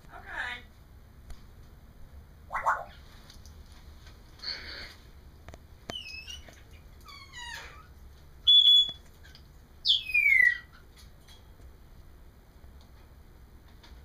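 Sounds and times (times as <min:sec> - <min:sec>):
parrot whistling: 0:02.5 - 0:03.0, 0:05.9 - 0:06.4, 0:08.5 - 0:09.0, 0:09.8 - 0:10.7.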